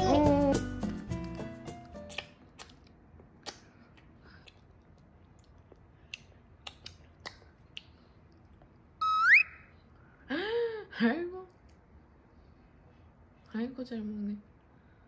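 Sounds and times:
toddler chewing: 0.8 - 8.7
whistle-like tone: 9.0 - 9.7.

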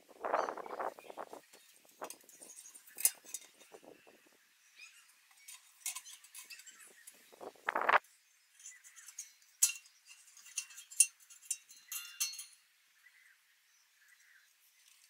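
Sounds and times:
metal scraping: 0.2 - 4.2, 5.3 - 8.0, 8.6 - 12.6
steel plate clinks and taps: 8.6 - 12.6.

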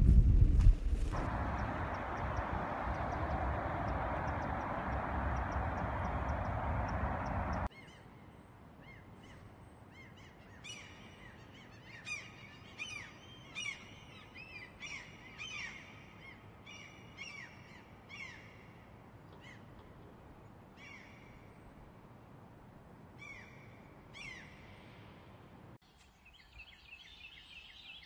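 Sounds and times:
gulls calling: 1.1 - 7.7
loud rushing noise: 1.1 - 7.7.

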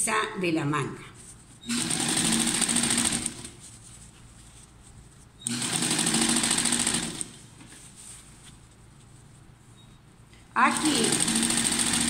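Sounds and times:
electric sewing machine stitching: 1.7 - 3.5, 5.4 - 7.4, 10.6 - 12.0.

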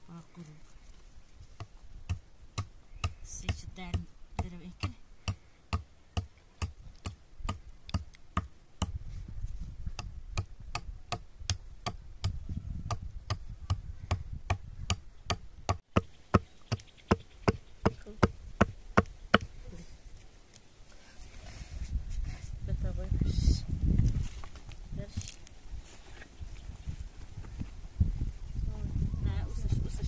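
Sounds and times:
sharp evenly spaced knocks: 14.1 - 19.5.

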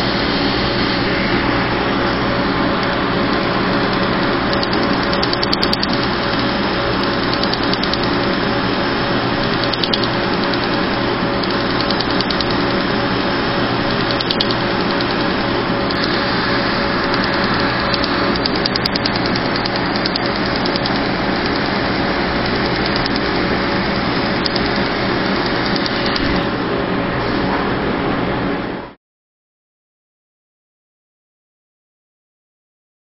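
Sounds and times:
machine hum and rushing air: 0.0 - 29.0
rapid faint clicks: 2.7 - 8.5, 9.4 - 13.0, 13.8 - 16.3, 17.0 - 26.4.

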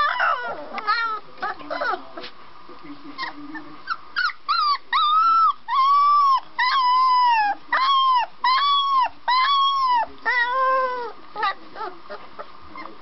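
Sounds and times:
puppy howling: 0.0 - 2.0, 4.2 - 12.0.

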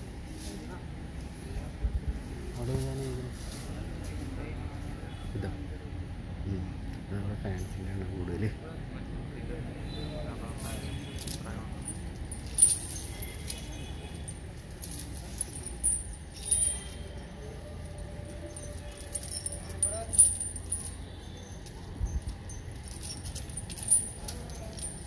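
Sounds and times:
metallic jingling and clinking: 10.2 - 25.0.

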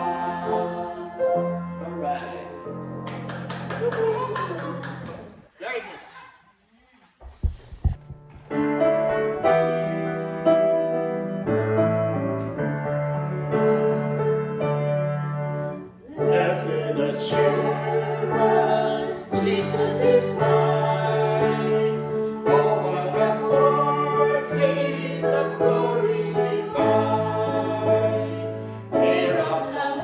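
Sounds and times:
group of voices singing: 0.0 - 1.8, 16.0 - 30.0
grand piano chords: 0.0 - 3.8, 7.4 - 30.0.

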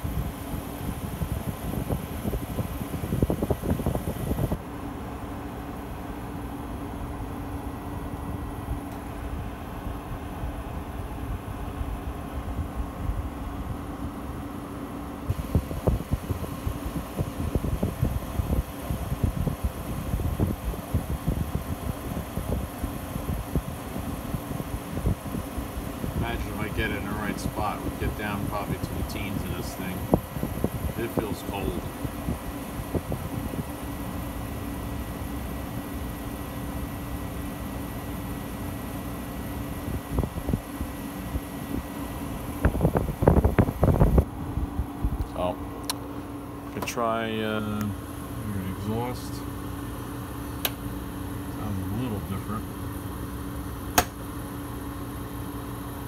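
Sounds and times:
air buffeting microphone: 0.0 - 4.6, 15.2 - 33.8, 39.8 - 49.6
air conditioner humming: 0.0 - 56.0.

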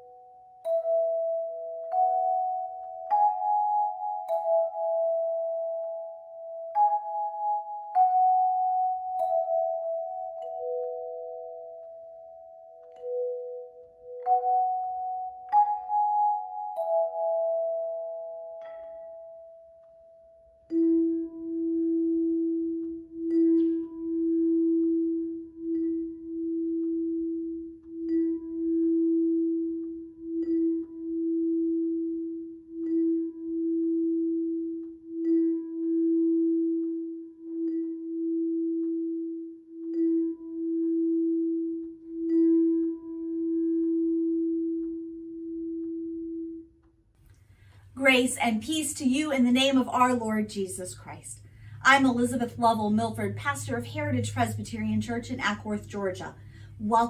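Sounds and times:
handchimes ringing: 0.0 - 45.7.

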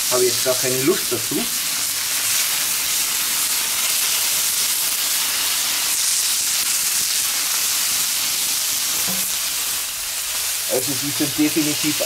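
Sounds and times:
steaks sizzling on hot plate: 0.0 - 12.0.

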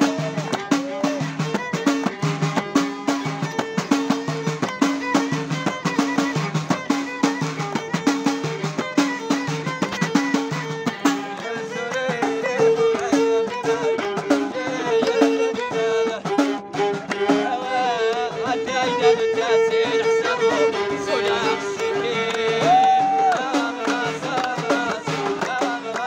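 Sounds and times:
hand frame drums: 0.0 - 26.0
violin melody: 0.0 - 26.0.

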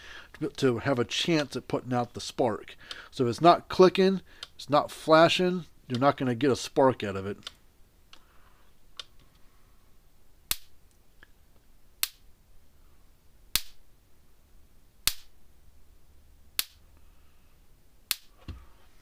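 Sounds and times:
electric spark snaps: 10.5 - 10.8, 12.0 - 12.3, 13.5 - 13.8, 15.0 - 15.4, 16.6 - 16.9, 18.1 - 18.3.

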